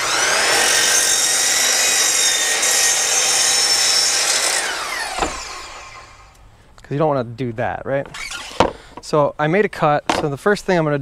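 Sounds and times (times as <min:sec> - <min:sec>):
miter saw cutting board: 0:00.0 - 0:06.4, 0:08.0 - 0:08.8
saw blade winding down whine: 0:00.0 - 0:06.4, 0:08.1 - 0:08.7.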